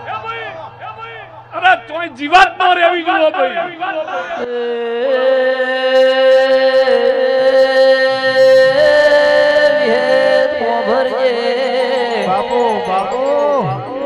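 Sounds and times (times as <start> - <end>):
person singing a long note: 3.6 - 14.0.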